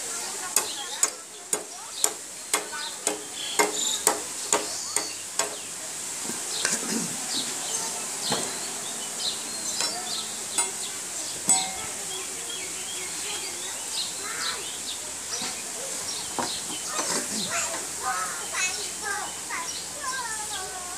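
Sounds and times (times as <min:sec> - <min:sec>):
machete chopping bamboo: 0:00.5 - 0:05.6.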